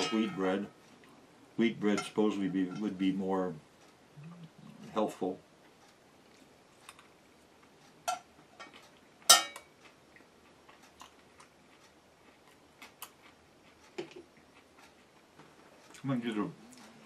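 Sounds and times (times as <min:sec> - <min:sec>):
metal utensil clinking dishes: 0:00.0 - 0:00.6, 0:09.3 - 0:09.7.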